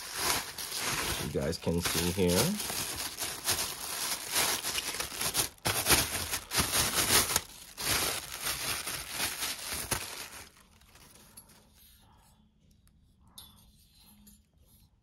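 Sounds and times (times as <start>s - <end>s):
plastic packaging crinkling: 0.0s - 11.3s.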